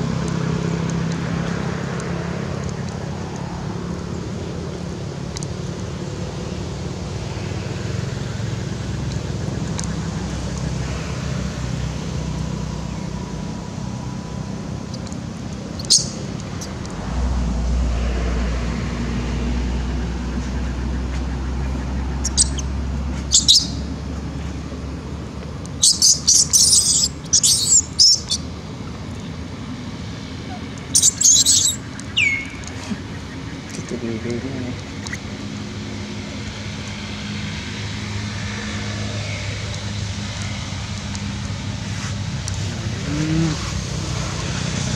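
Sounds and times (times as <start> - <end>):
engine humming: 0.0 - 44.9
low rumble: 12.0 - 22.8
monkey high-pitched squeaks: 15.8 - 16.7, 22.2 - 23.8, 25.8 - 28.4, 30.4 - 33.0
short rising call: 15.8 - 20.7.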